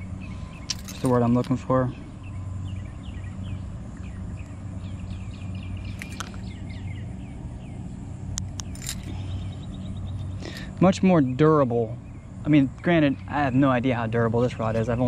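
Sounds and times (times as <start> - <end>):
small bird chirping: 0.0 - 15.0
steady low hum: 0.0 - 15.0
sharp clicks: 8.3 - 9.0.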